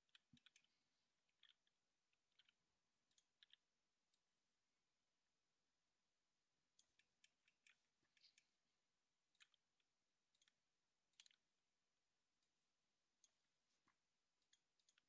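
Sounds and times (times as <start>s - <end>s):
computer mouse clicks: 0.0s - 4.2s, 6.8s - 8.5s, 9.3s - 9.7s, 10.3s - 11.4s, 13.2s - 15.0s.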